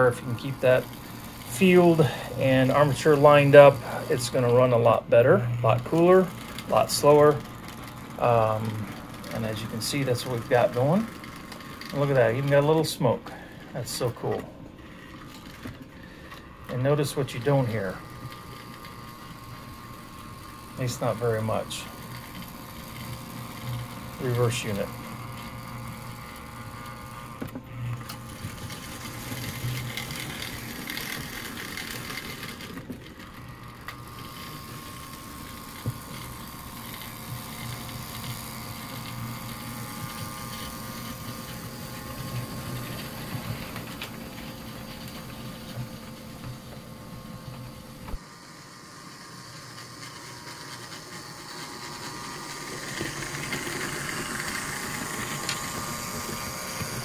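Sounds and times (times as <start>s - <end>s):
toy train motor and gear hum: 0.0s - 57.0s.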